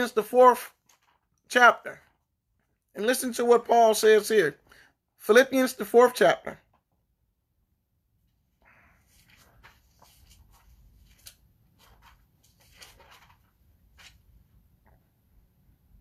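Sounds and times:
pages being turned: 0.6 - 2.1, 8.7 - 14.4.

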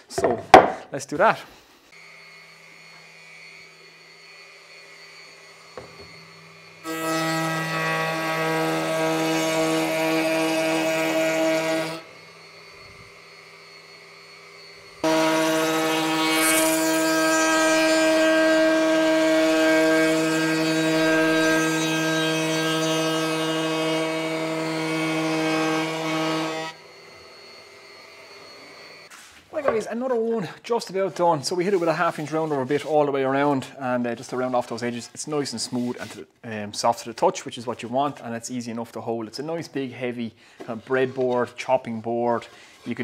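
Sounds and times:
router whining: 1.9 - 29.8.

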